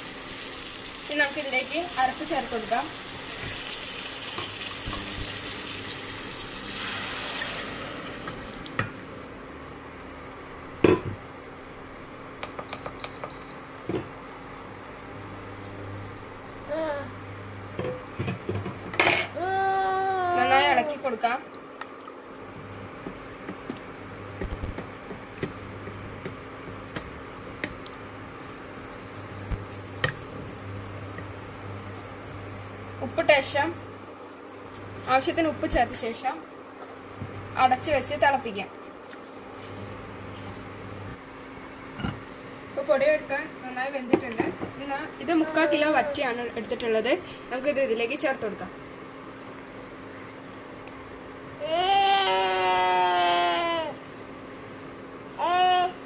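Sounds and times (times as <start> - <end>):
onions sizzling in oil: 0.0 - 9.2.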